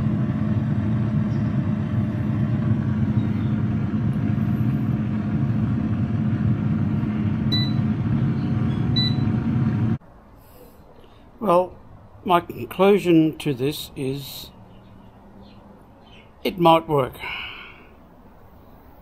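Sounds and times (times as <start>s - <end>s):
air fryer fan whirring: 0.0s - 10.0s.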